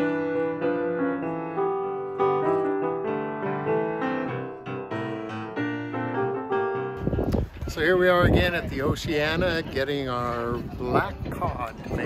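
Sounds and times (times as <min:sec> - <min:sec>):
solo piano music: 0:00.0 - 0:07.3.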